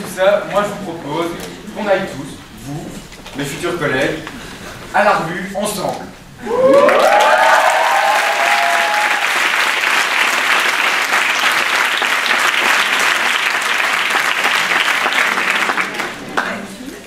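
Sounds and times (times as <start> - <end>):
whoops and cheers: 6.4 - 9.5
audience clapping: 6.5 - 17.0.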